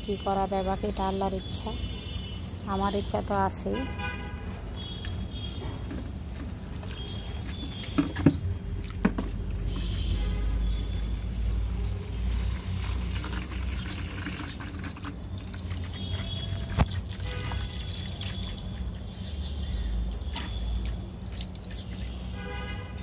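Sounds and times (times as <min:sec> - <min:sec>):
hose water splashing into bucket: 0:04.9 - 0:23.0.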